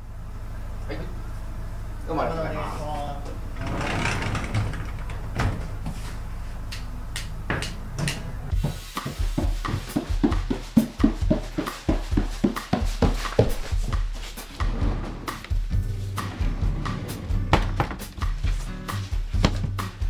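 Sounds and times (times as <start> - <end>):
footsteps on wooden stairs: 5.1 - 6.7, 7.5 - 16.6, 17.5 - 20.0
knocks and clicks: 6.8 - 8.3
background music: 7.1 - 20.0.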